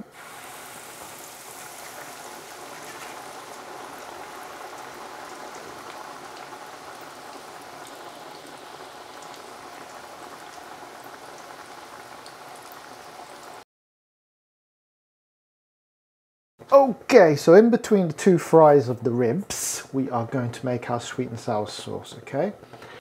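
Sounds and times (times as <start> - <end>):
meat deep-frying in oil: 0.0 - 13.6.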